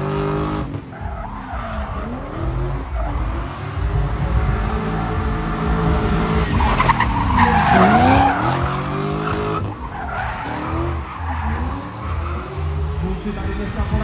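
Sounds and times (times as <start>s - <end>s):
car engine revving: 0.0s - 14.0s
tyres squealing: 6.6s - 13.4s.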